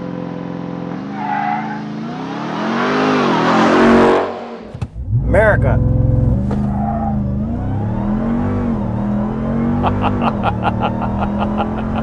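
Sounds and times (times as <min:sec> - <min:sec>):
truck engine from inside cab: 0:01.8 - 0:12.0
person laughing: 0:09.8 - 0:12.0.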